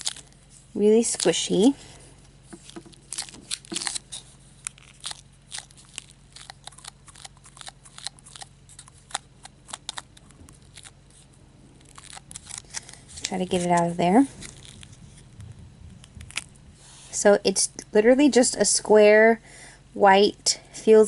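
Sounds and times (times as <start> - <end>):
plastic tray crackling: 2.5 - 11.0.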